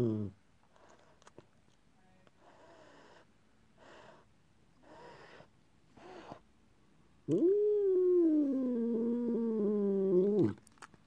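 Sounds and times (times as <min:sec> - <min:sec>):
cat huffing: 0:02.4 - 0:06.4.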